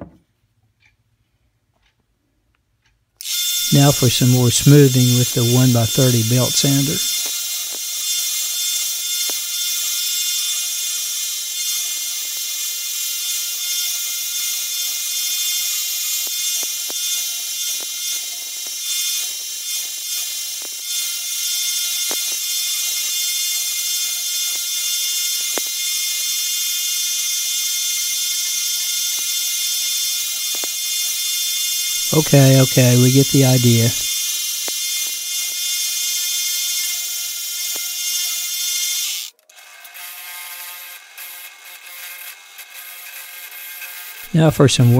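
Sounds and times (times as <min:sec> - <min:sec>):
belt sander grinding hiss: 0:03.6 - 0:10.5, 0:11.8 - 0:37.0.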